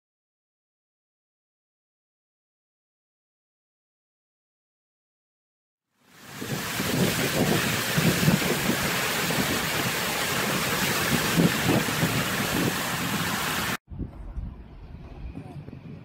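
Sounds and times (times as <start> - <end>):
tyre spray hissing through water: 6.1 - 13.8
wind buffeting microphone: 6.3 - 16.0
low rumble: 13.9 - 16.0.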